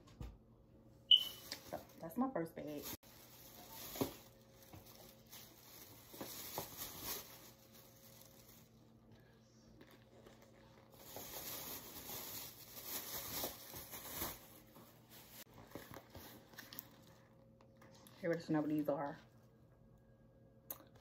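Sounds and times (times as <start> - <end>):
plastic bags rustling: 1.1 - 8.9, 9.7 - 18.3.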